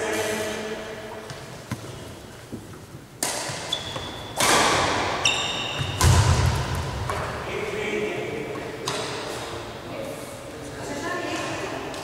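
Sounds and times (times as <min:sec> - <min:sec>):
sneakers squeaking on wooden court: 0:01.2 - 0:06.2
racket hitting shuttlecock: 0:03.2 - 0:07.4.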